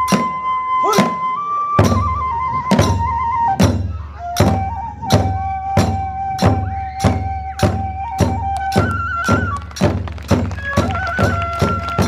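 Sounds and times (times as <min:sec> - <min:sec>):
bamboo flute high notes: 0:00.0 - 0:12.0
drum beat: 0:04.4 - 0:12.0.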